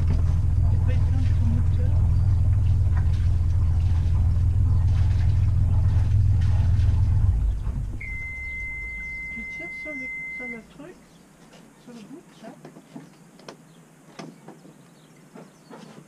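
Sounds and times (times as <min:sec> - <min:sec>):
boat engine idling: 0:00.0 - 0:11.0
steady high alarm beep: 0:08.0 - 0:10.7.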